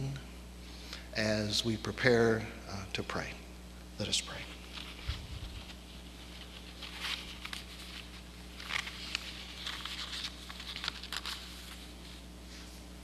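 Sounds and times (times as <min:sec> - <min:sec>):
low electrical hum: 0:00.0 - 0:13.0
paper pages rustling: 0:04.3 - 0:12.3.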